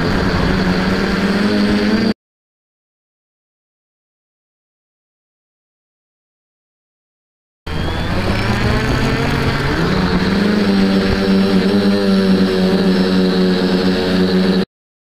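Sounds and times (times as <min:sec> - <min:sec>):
drone motors and propellers whining: 0:00.0 - 0:02.2, 0:07.7 - 0:14.7.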